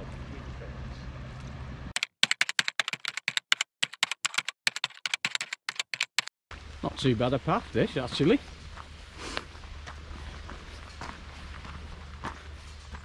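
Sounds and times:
outdoor background noise: 0:00.0 - 0:02.0, 0:06.5 - 0:13.0
footsteps on gravel: 0:08.0 - 0:13.0.

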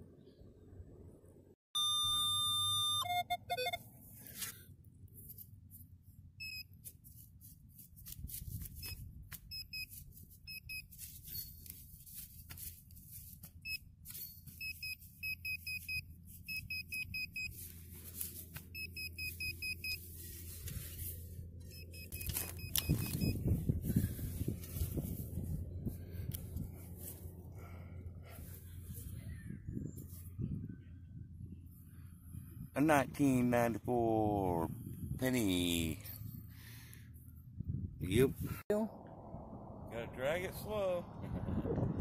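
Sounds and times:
metal detector beeping: 0:01.8 - 0:04.5, 0:06.4 - 0:06.9, 0:08.6 - 0:12.1, 0:13.6 - 0:24.8
knife and shovel digging into soil: 0:04.2 - 0:05.5.

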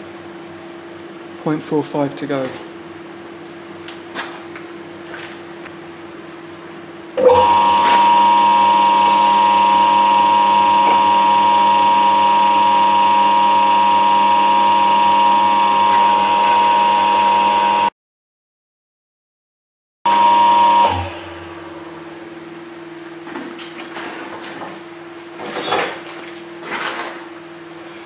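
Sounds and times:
lathe motor whining: 0:07.2 - 0:17.9, 0:20.1 - 0:21.8
cutter hissing on metal: 0:15.9 - 0:17.9.

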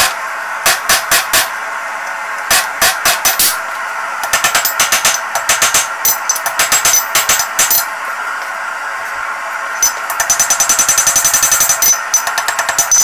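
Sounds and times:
hammer striking steel on anvil: 0:00.0 - 0:01.6, 0:02.4 - 0:07.9.

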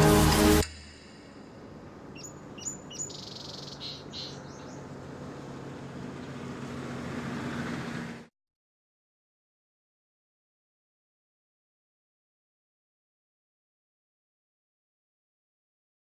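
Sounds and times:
music: 0:00.0 - 0:01.3
low outdoor hum: 0:00.0 - 0:08.3
birds chirping: 0:02.0 - 0:07.7.

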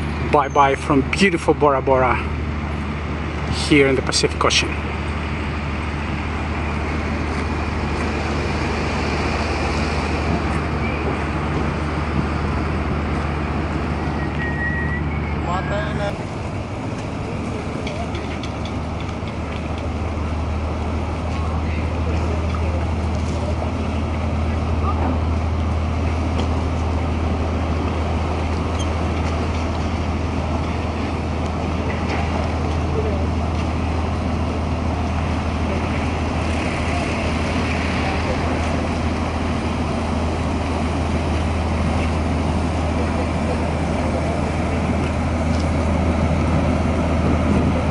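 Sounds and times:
ship machinery humming: 0:00.0 - 0:47.9
water noise: 0:00.0 - 0:47.9
wind: 0:00.0 - 0:47.9.

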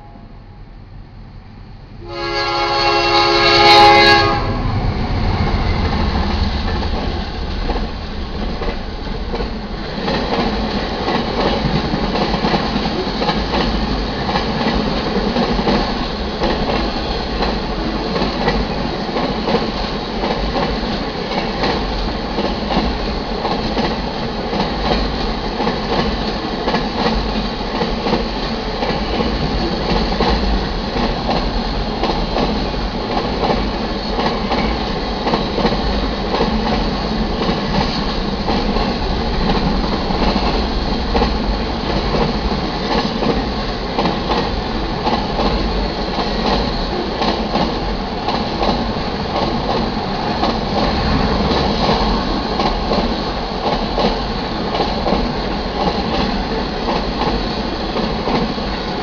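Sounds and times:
train horn blast: 0:02.0 - 0:04.8
train cars rolling by: 0:03.2 - 0:59.0.

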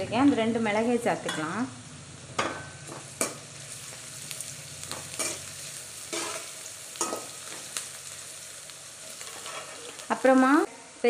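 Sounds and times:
onions sizzling in oil: 0:00.2 - 0:11.0
metal spatula scraping a pan: 0:05.1 - 0:07.7, 0:09.1 - 0:10.3.

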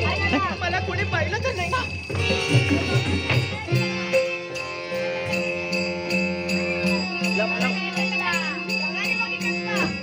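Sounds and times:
harmonium holding notes: 0:00.0 - 0:10.0
jingling metal percussion: 0:00.0 - 0:10.0
drum strokes: 0:01.8 - 0:07.0.

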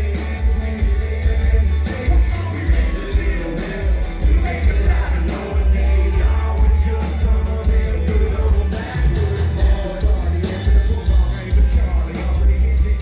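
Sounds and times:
country-rock band playing: 0:00.0 - 0:13.0
man singing: 0:00.0 - 0:13.0.

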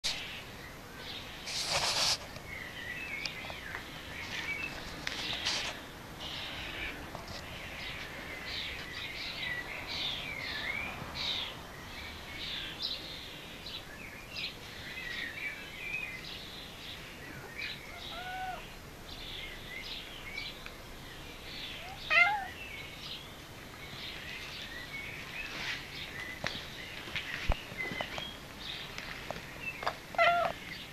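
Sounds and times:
birds chirping: 0:00.1 - 0:30.9
cat meowing: 0:17.9 - 0:18.7, 0:21.8 - 0:22.6, 0:30.2 - 0:30.6.

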